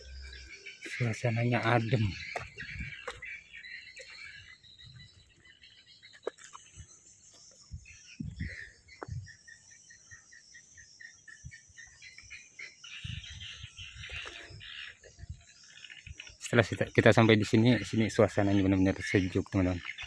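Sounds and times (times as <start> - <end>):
bird chirping: 0.0 - 20.0
dull low thumps: 1.8 - 3.4.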